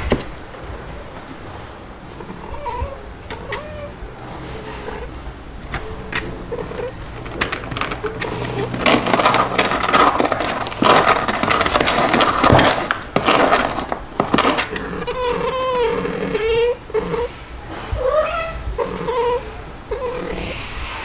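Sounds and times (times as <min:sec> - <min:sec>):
cats scratching and rustling: 0:00.0 - 0:21.0
cat meowing: 0:02.2 - 0:09.0, 0:14.6 - 0:20.8.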